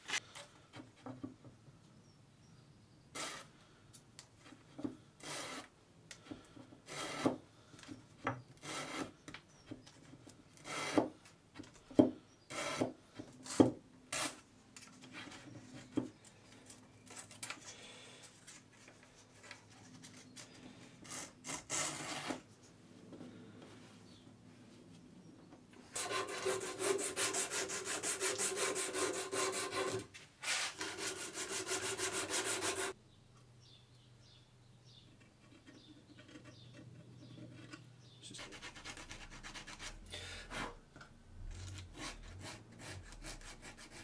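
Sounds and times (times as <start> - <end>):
wood rubbing and scraping on wood: 25.9 - 33.0.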